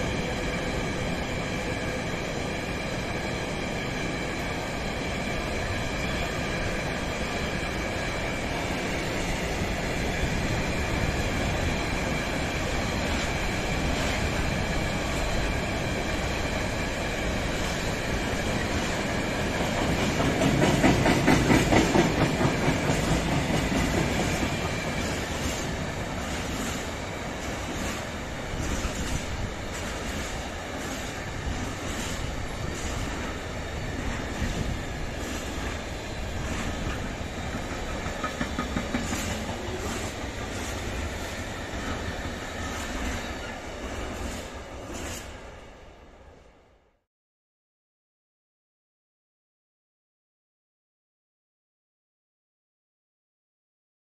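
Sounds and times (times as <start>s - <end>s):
freight wagons clicking over rail joints: 36.4s - 40.9s.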